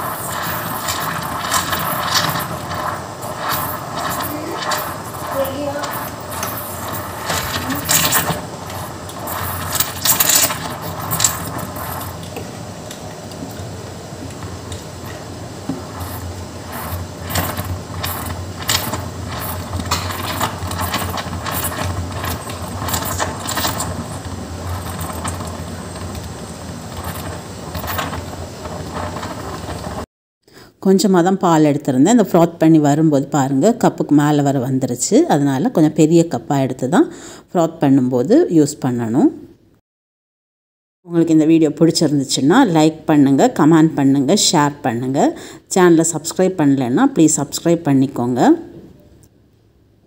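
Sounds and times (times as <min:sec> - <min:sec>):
steam wand frothing milk: 0:00.0 - 0:30.1.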